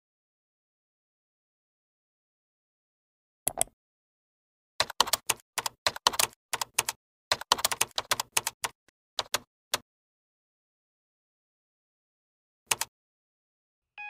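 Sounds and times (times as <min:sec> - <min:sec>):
computer keyboard typing: 0:04.8 - 0:09.5, 0:12.7 - 0:12.9.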